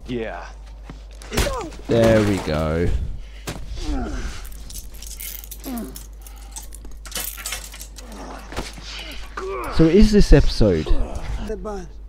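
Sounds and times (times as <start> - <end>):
handcuffs jangling and clicking: 4.4 - 8.5.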